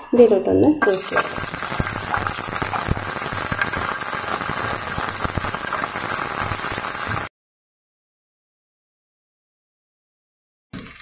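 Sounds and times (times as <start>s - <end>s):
nuts sizzling and popping in pan: 0.8s - 7.3s.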